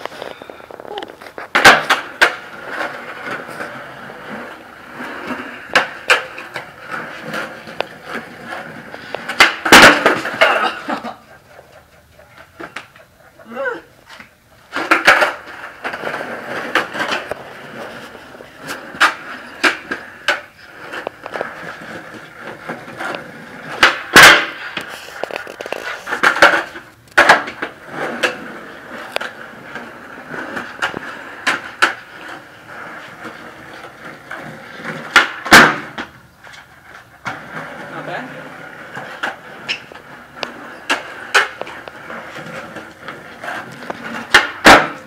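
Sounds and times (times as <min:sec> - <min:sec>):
skateboard tail pops and deck clacks: 0:00.0 - 0:11.1, 0:14.1 - 0:37.6, 0:38.7 - 0:45.0
skateboard wheels rolling on concrete: 0:00.0 - 0:45.0.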